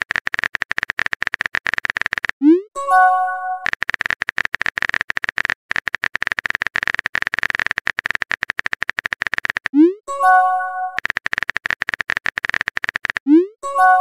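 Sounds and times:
phone keyboard typing clicks: 0.0s - 14.0s
message sent blip and chime: 2.4s - 3.7s, 9.8s - 11.0s, 13.3s - 14.0s.

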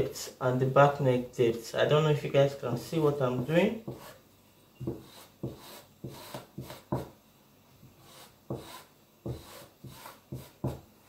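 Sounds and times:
chalk scraping across fabric: 3.9s - 4.2s, 4.9s - 7.1s, 8.0s - 10.8s.

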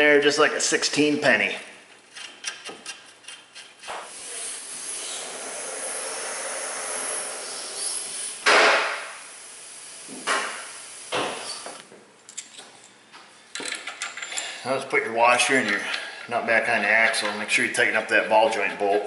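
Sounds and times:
loud rushes of hissing: 4.1s - 11.8s
steady hiss: 4.1s - 11.8s.

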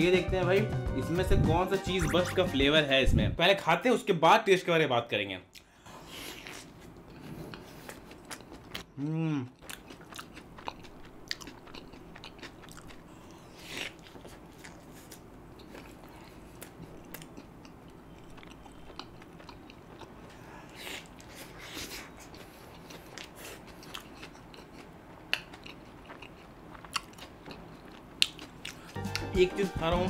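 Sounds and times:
person humming: 9.0s - 9.5s
biting and chewing bread: 9.6s - 29.3s.

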